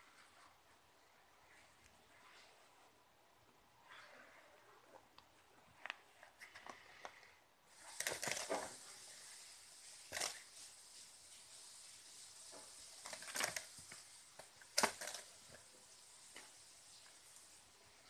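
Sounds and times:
faint steady hiss: 0.0 - 18.0
cat scratching and rustling toys: 3.8 - 18.0.

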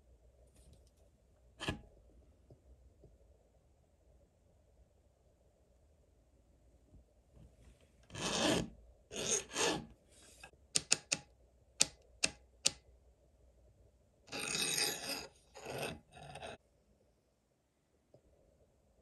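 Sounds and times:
file rasping on saw chain: 14.3 - 16.6.

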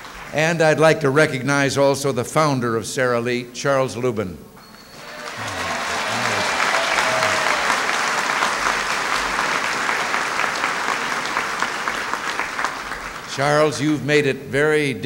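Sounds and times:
crowd applauding: 0.0 - 0.4, 4.9 - 13.7.

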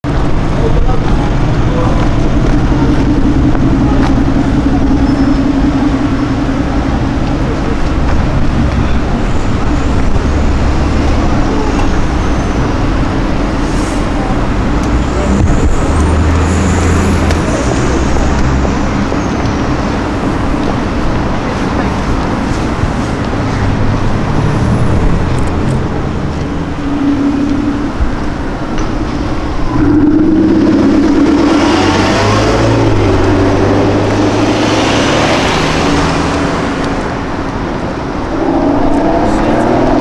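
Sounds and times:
street traffic: 0.0 - 40.0
car engine running at low speed: 0.1 - 13.6.

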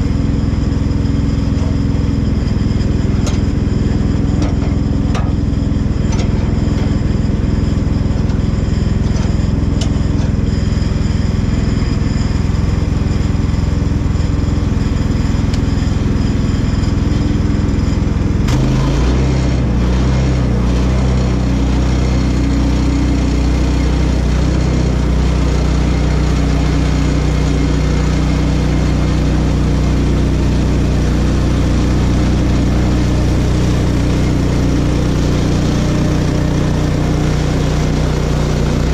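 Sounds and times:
small gasoline engine running: 0.0 - 38.9
saw cutting wood: 18.5 - 25.6, 34.1 - 38.9.

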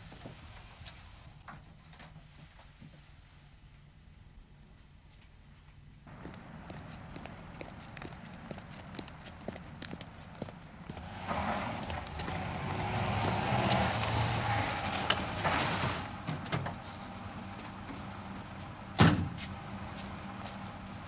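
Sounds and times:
car passing: 6.1 - 21.0
vehicle door slamming: 19.0 - 19.4.

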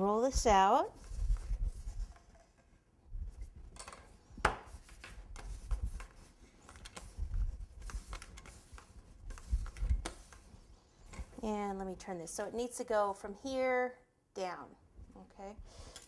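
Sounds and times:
rolling pin rolling fondant: 4.4 - 11.6.

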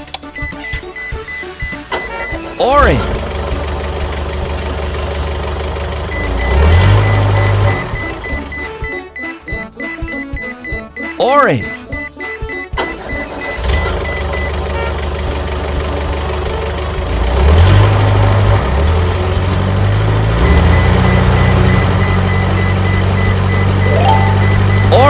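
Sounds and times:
cartoon truck engine revving: 1.1 - 10.1, 12.8 - 25.0
short rising chirp: 23.8 - 25.0.

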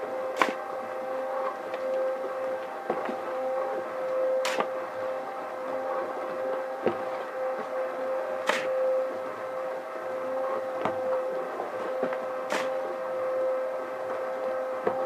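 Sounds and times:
shovel scraping sand: 8.4 - 8.7, 12.5 - 12.8.

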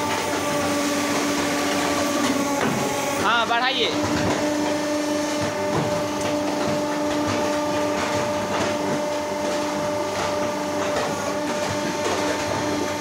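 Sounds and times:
machine motor hum: 0.0 - 13.0.

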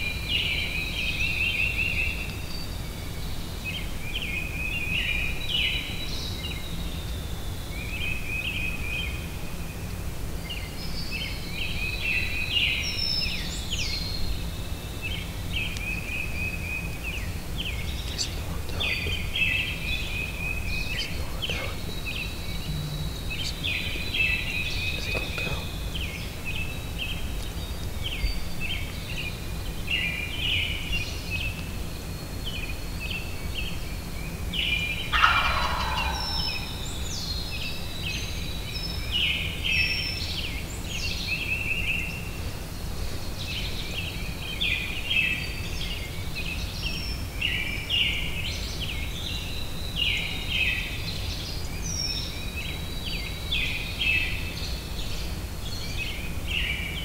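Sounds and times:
songbirds singing and chirping: 0.0 - 57.0
turkey gobbling: 35.1 - 36.8.

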